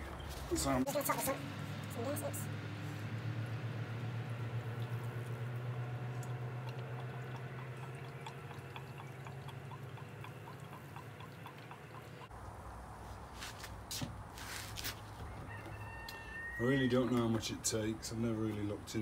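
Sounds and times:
gasoline pouring into tank: 0:04.1 - 0:12.2
gas can glugging: 0:04.4 - 0:12.3.

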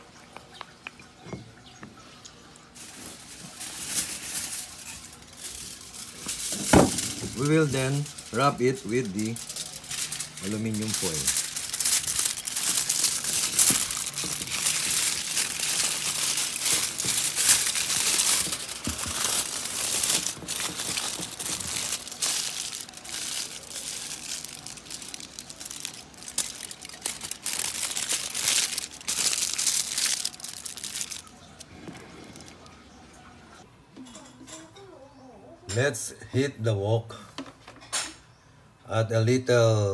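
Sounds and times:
aluminium foil crinkling: 0:02.6 - 0:32.8.

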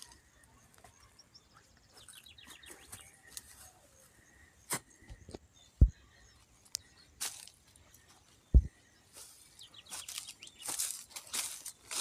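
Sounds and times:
footsteps: 0:08.5 - 0:12.0.

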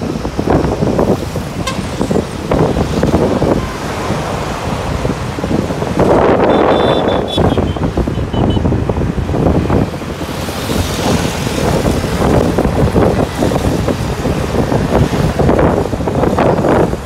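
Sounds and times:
engine and tyre noise: 0:00.0 - 0:17.0
wind buffeting microphone: 0:00.0 - 0:17.0.

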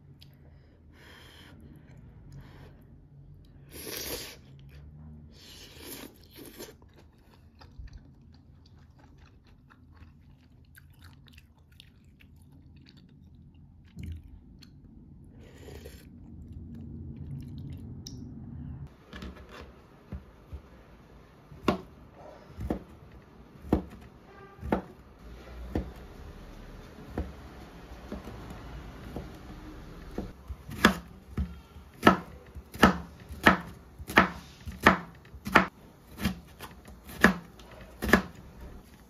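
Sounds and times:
knife chopping on cutting board: 0:21.6 - 0:22.0, 0:22.6 - 0:23.0, 0:23.6 - 0:25.0, 0:30.1 - 0:38.4.

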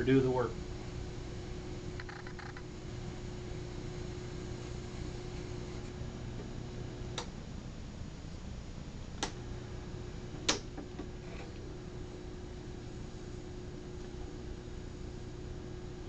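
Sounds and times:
sharpening machine motor hum: 0:00.0 - 0:07.3, 0:09.4 - 0:16.0.

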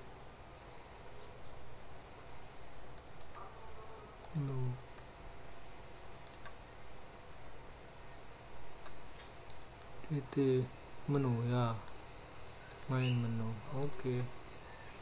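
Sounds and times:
computer mouse clicks: 0:02.9 - 0:03.4, 0:04.2 - 0:05.1, 0:06.2 - 0:06.6, 0:08.8 - 0:09.9, 0:11.1 - 0:14.3.

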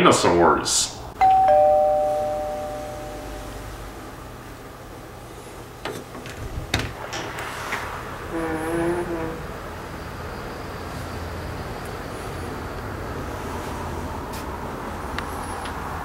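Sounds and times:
door creaking: 0:05.8 - 0:09.4
front door opening: 0:05.8 - 0:09.4.

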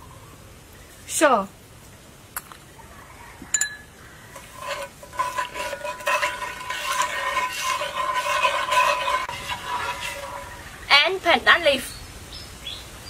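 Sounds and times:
utensil scraping a pot: 0:04.3 - 0:11.2.

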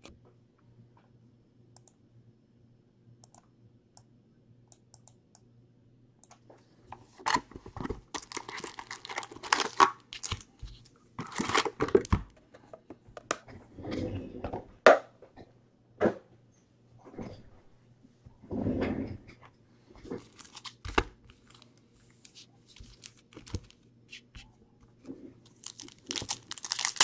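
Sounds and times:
foil packs crinkling and rustling: 0:07.2 - 0:10.6, 0:11.2 - 0:12.2, 0:20.2 - 0:23.8, 0:25.5 - 0:27.0.

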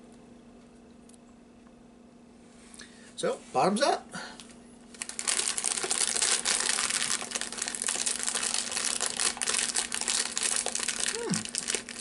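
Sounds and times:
plastic snack packet rustling: 0:04.9 - 0:12.0.

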